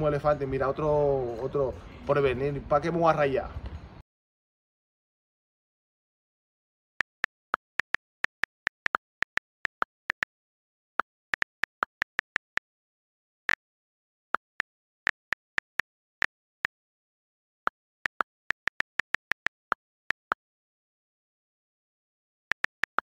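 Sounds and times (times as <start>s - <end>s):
phone keyboard clicking: 7.0s - 10.3s, 11.2s - 12.6s, 14.4s - 15.8s, 18.1s - 20.4s, 22.5s - 23.0s.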